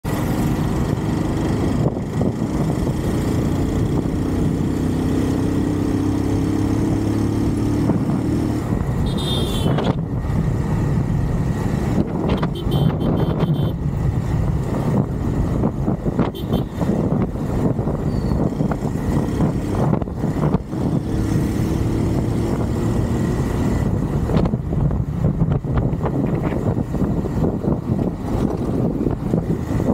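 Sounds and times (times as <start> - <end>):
road noise: 0.0 - 29.9
wind rush: 0.0 - 29.9
motorcycle engine running: 0.1 - 29.9
short high tone from traffic: 9.0 - 10.0.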